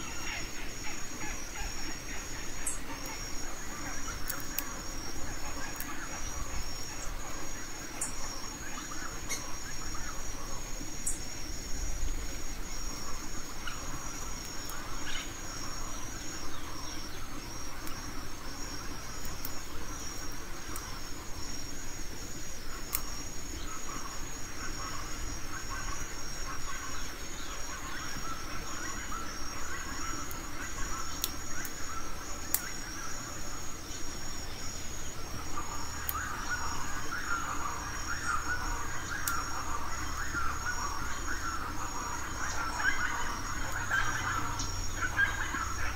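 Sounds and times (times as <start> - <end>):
insects chirping: 0.0 - 45.9
faint sharp clicks: 4.2 - 4.7, 22.9 - 23.2, 31.1 - 31.8, 32.5 - 32.8, 39.1 - 39.4.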